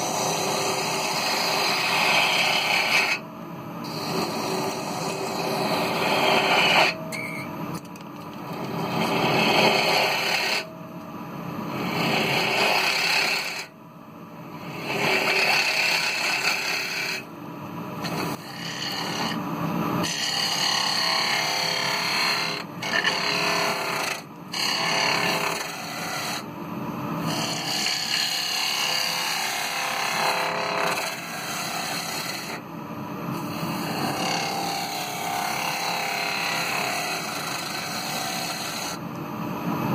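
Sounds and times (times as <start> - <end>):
lathe humming: 18.0 - 19.4.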